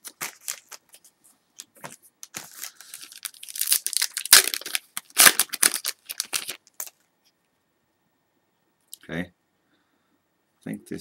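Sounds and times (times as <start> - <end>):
card pack wrapper tearing: 0.0 - 1.0, 1.7 - 7.0.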